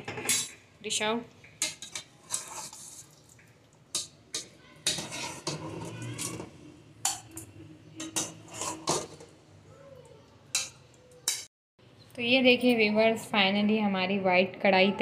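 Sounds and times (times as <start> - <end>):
metal spatula scraping and knocking pot: 0.0 - 0.6, 1.6 - 3.2, 3.9 - 9.4.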